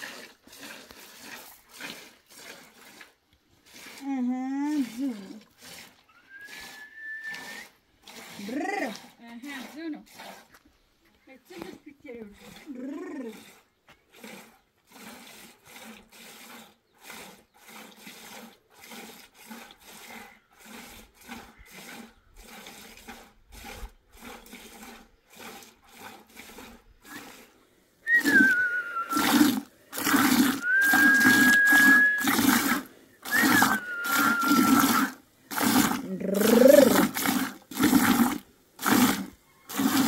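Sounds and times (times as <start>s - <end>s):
milk squirting into pail: 0.0s - 10.7s, 11.5s - 40.0s
high whistle-like tone: 6.1s - 7.7s, 28.1s - 29.3s, 30.6s - 32.4s, 33.3s - 35.1s.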